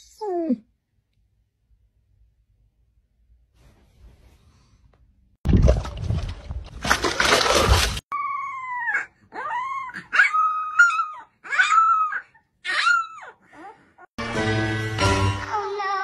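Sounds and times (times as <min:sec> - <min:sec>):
dog drinking water splash: 0:05.5 - 0:08.0
puppy howling: 0:08.1 - 0:13.4.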